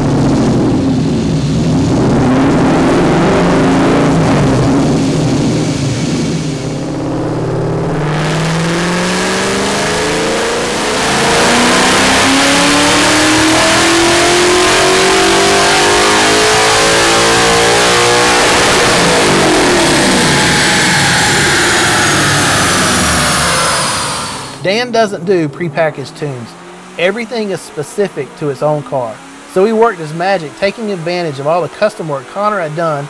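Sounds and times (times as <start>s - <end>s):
engine revving on dyno: 0.0s - 33.0s.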